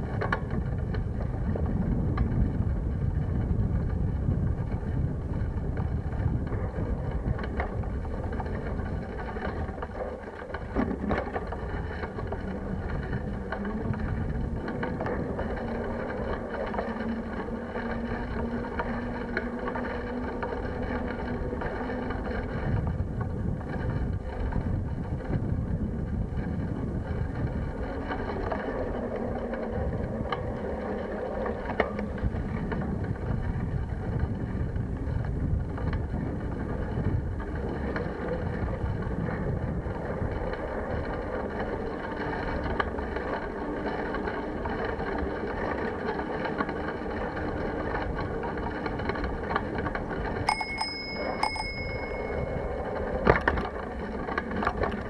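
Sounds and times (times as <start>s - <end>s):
wind and tyres rumbling: 0.0s - 55.0s
bicycle bell ringing: 50.5s - 53.0s.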